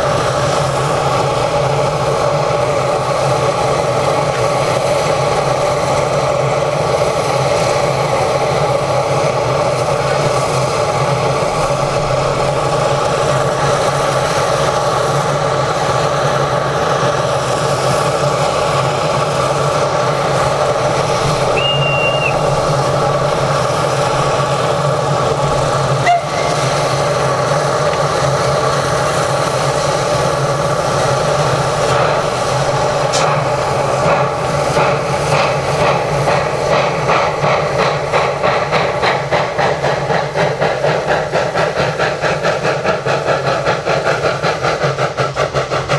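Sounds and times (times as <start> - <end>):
locomotive exhaust beats: 0.0 - 45.9
steam hissing: 0.0 - 45.9
steam whistle note: 21.5 - 22.5, 26.0 - 26.8.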